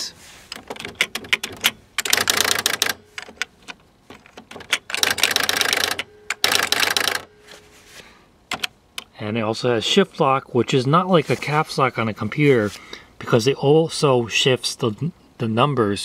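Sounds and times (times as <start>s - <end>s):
electronic typewriter typing: 0.6s - 7.3s, 8.5s - 8.7s.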